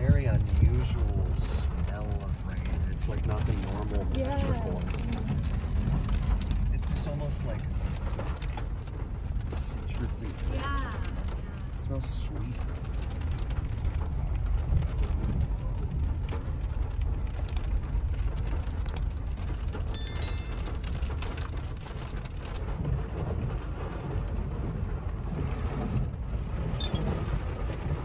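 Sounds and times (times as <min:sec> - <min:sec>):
rain on a vehicle roof: 0:00.0 - 0:28.0
road and engine rumble: 0:00.0 - 0:28.0
short electronic chime: 0:20.0 - 0:20.9, 0:26.8 - 0:27.1.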